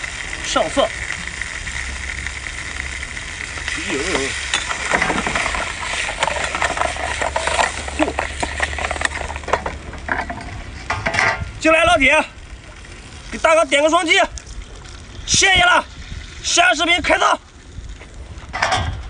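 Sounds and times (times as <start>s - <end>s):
seafood sizzling in a wok: 0.0s - 18.3s
ladle scraping and knocking pan: 4.5s - 11.4s.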